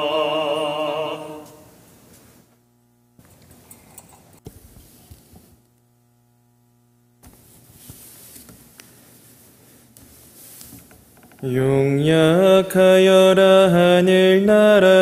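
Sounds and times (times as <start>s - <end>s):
faint electrical hum: 0.0s - 15.0s
soft rustling: 7.3s - 11.2s.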